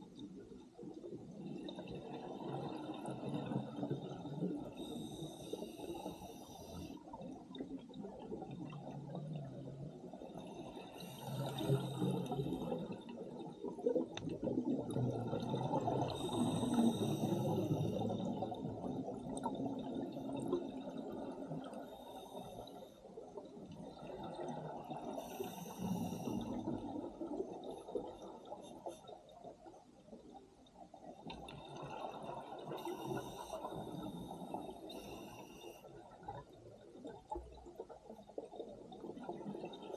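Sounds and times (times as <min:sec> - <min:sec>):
hissing breath through regulator: 0:04.8 - 0:07.0, 0:10.7 - 0:12.8, 0:16.0 - 0:18.2, 0:25.1 - 0:26.7, 0:32.8 - 0:35.9
bubbles gurgling underwater: 0:11.3 - 0:21.7.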